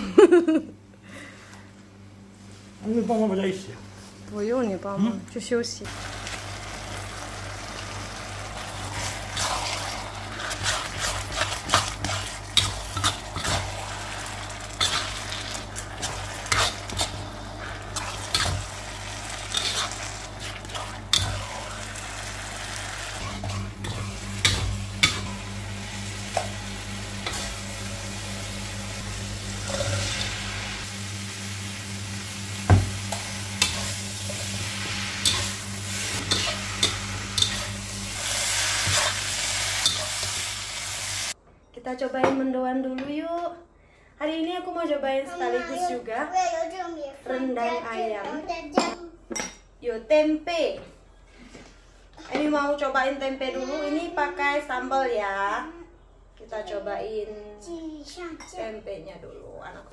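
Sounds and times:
sambal sizzling in a wok: 0:05.8 - 0:41.4
metal utensil scraping a wok: 0:08.8 - 0:22.2, 0:27.2 - 0:27.9, 0:29.6 - 0:30.8, 0:33.1 - 0:41.3.

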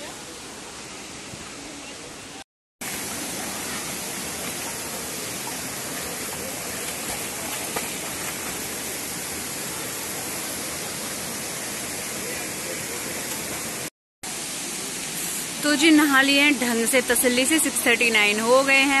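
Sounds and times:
waterfall rushing: 0:02.8 - 0:18.8.

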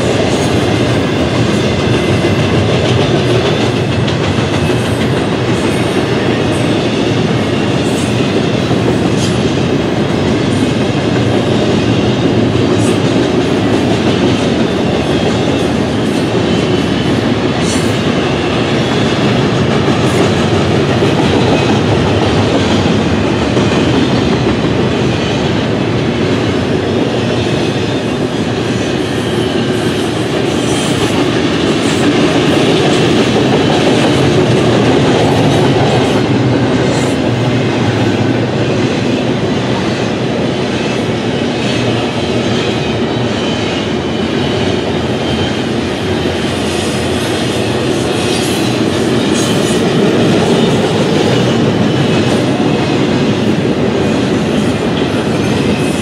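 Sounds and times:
train wheels rolling on rail: 0:00.0 - 0:56.0.

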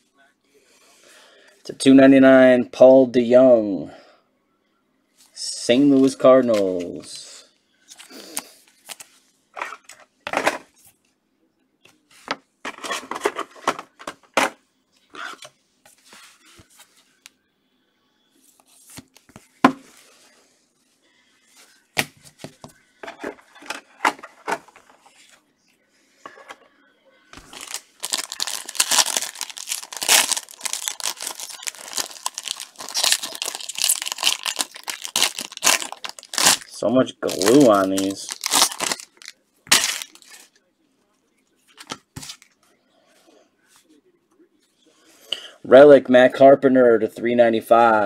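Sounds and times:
cards and plastic sleeves rustling: 0:05.9 - 0:07.1, 0:07.9 - 0:11.0, 0:12.2 - 0:14.6, 0:21.5 - 0:25.4, 0:27.4 - 0:40.6, 0:41.7 - 0:42.6
plastic wrapper crinkling and tearing: 0:27.4 - 0:40.5.

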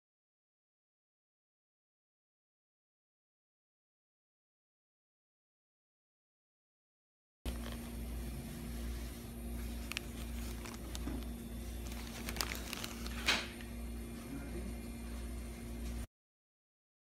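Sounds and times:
paper wrapper crinkling: 0:07.5 - 0:13.7.

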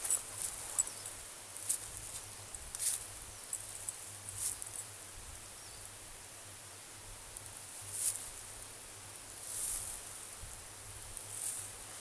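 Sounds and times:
crunching rustles in pine needles: 0:00.0 - 0:04.9, 0:07.8 - 0:08.7, 0:09.3 - 0:12.0.

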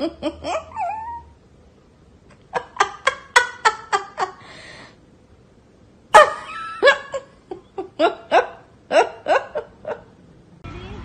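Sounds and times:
person laughing: 0:00.0 - 0:01.0, 0:02.4 - 0:04.4, 0:06.2 - 0:10.1.

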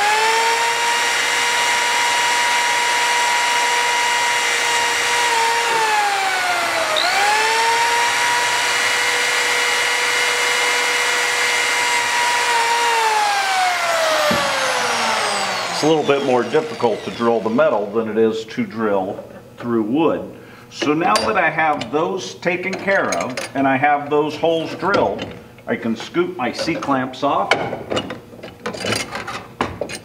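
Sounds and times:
electric drill motor whine: 0:00.0 - 0:18.0.

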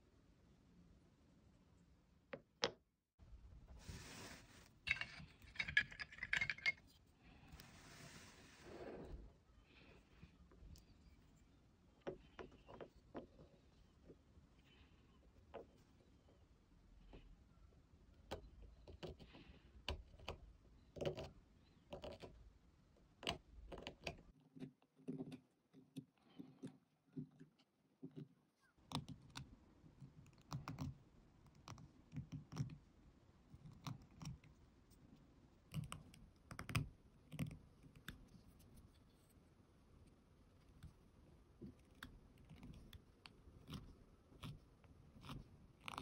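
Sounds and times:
tools clinking and rattling: 0:04.9 - 0:07.0
chisel clicking and scraping seed: 0:19.9 - 0:22.4, 0:41.6 - 0:46.0.

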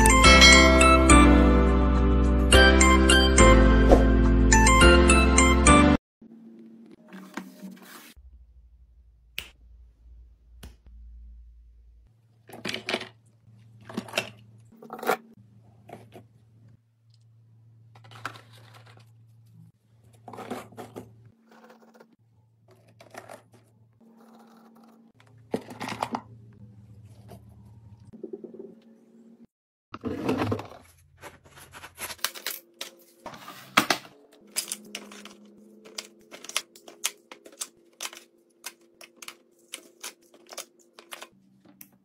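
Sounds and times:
rustles and scrapes of handling: 0:07.0 - 0:08.2, 0:30.1 - 0:33.8.

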